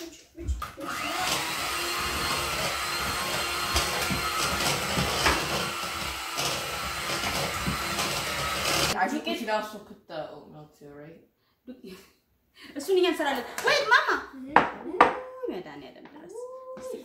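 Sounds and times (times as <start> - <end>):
electric hand mixer whirring: 0.5 - 9.0.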